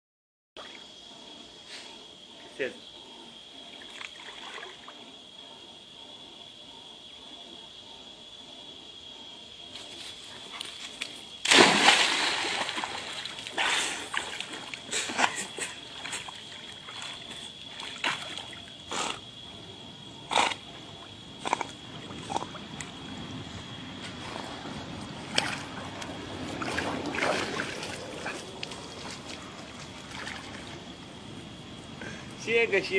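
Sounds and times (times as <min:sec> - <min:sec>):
dog swimming and sloshing: 0:09.9 - 0:31.3
dog splashing into water: 0:11.4 - 0:18.6, 0:26.6 - 0:28.3.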